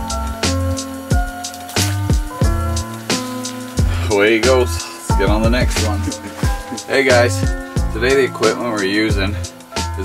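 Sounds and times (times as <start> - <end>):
hip-hop beat with kick drums: 0.0 - 10.0
man speaking: 4.0 - 9.4.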